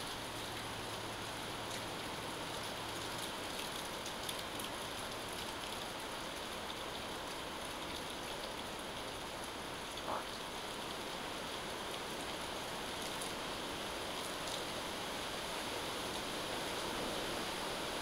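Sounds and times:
steady rain hiss: 0.0s - 18.0s
raindrop ticks: 1.6s - 10.6s.

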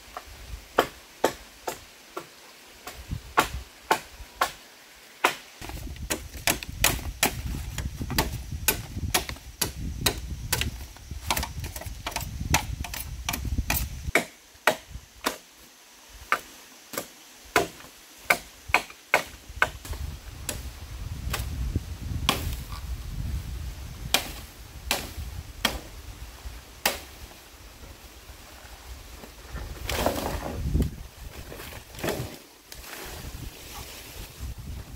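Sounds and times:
machete chopping bamboo branches: 0.8s - 4.6s, 5.2s - 15.5s, 16.3s - 20.6s, 22.2s - 22.7s, 24.1s - 25.9s, 26.8s - 27.4s.

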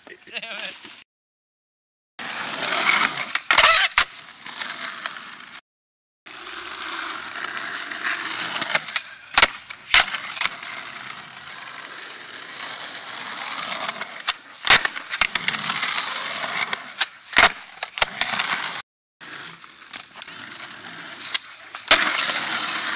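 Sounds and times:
skateboard wheels rolling on concrete: 0.0s - 1.0s, 2.2s - 5.6s, 6.3s - 22.9s
skateboard clacking on concrete: 13.2s - 22.9s.

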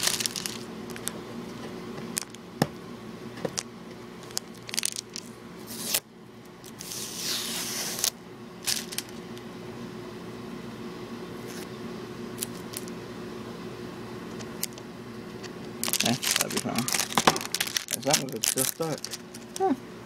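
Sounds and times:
packaging rustling: 0.0s - 1.1s, 4.2s - 6.0s, 8.0s - 9.2s, 15.8s - 19.8s.

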